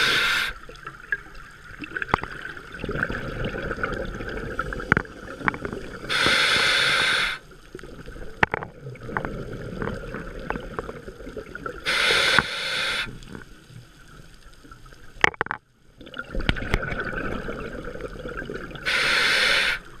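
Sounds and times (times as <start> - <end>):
regulator inhale hiss: 0.0 - 0.6, 6.0 - 7.5, 11.8 - 13.3, 18.8 - 20.0.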